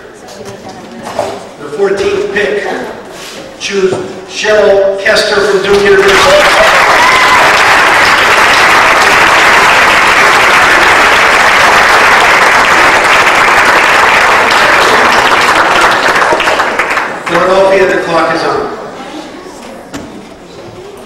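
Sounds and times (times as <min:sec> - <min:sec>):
audience applauding: 0:05.8 - 0:17.5.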